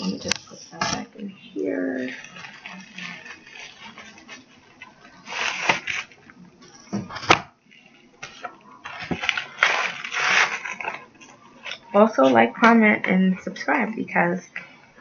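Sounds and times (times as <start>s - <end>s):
plastic mailer rustling: 2.1s - 6.2s, 8.2s - 11.1s.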